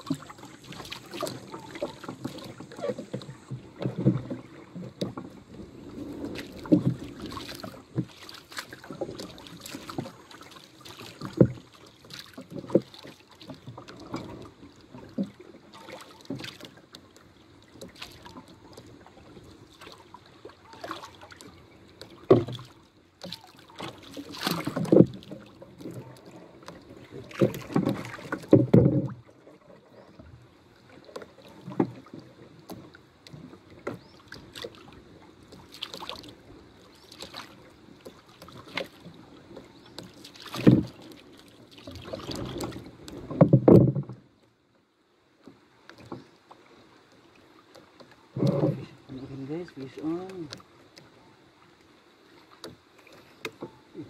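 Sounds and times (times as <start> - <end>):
waves slapping boat hull: 0.0 - 44.6, 45.3 - 54.0.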